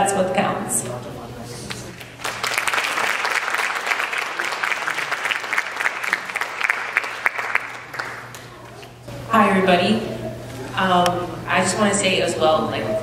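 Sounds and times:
audience applauding: 1.6s - 9.0s.

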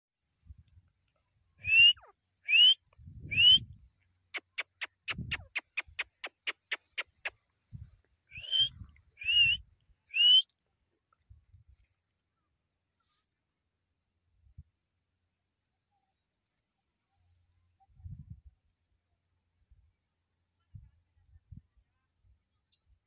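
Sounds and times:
bird rising whistled calls: 1.6s - 3.6s, 8.3s - 10.4s
bird sharp clicks: 4.4s - 7.4s.

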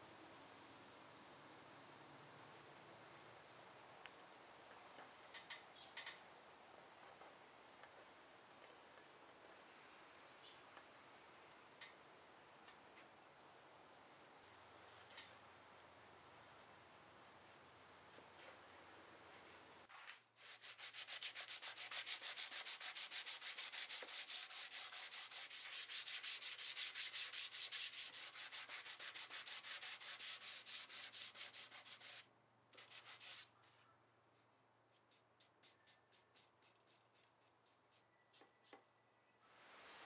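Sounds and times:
sandpaper rubbing on wood: 20.4s - 33.5s.

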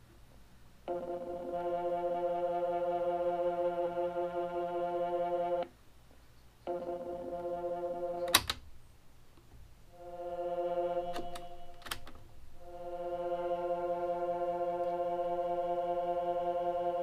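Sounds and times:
synthesizer organ-like note: 0.9s - 5.7s, 6.7s - 8.4s, 9.9s - 17.0s.

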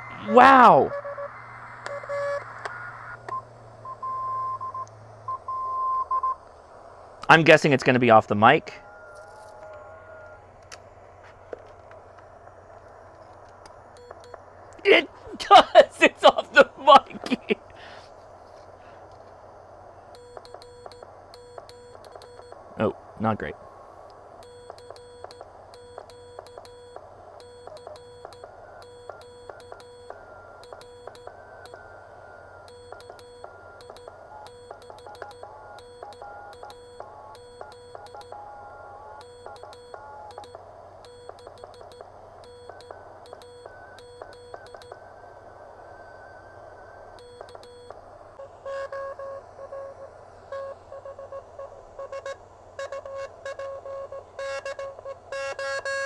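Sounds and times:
receiver noise hiss: 0.0s - 56.0s
morse code beeps: 3.3s - 6.4s, 14.0s - 14.4s, 20.2s - 22.6s, 24.4s - 31.8s, 32.6s - 38.5s, 39.2s - 45.0s, 47.2s - 56.0s
receiver hiss: 46.3s - 56.0s.

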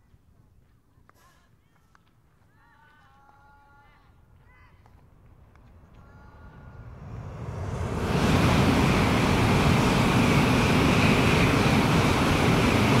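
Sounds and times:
deep rumble: 5.2s - 13.0s
high-speed train rushing: 5.6s - 13.0s.

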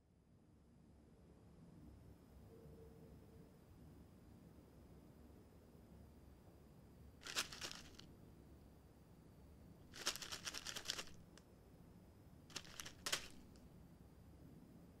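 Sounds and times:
plastic bag crinkling: 7.2s - 8.0s, 9.9s - 11.4s, 12.5s - 13.6s.

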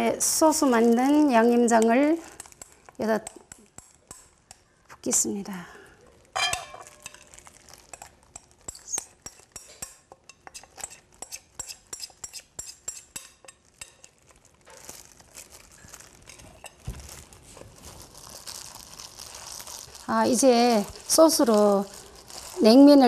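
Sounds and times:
spoon clinking on glass bowl: 6.4s - 7.3s
soft rustling: 13.6s - 23.0s.

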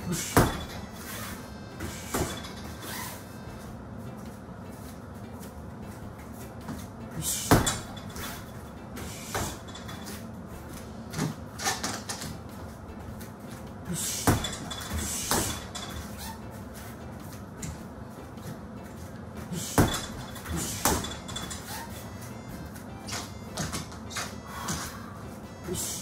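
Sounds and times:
low room hum: 0.0s - 26.0s
punches thudding on heavy bag: 0.1s - 0.8s, 7.4s - 8.0s, 14.1s - 15.7s, 19.6s - 21.2s.

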